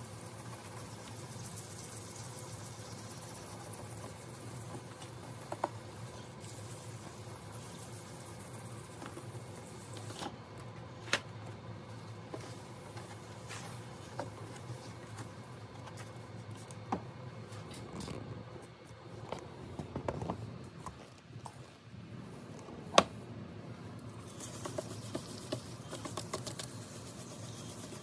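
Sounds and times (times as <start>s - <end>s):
hand sanding plastic: 24.2s - 28.0s.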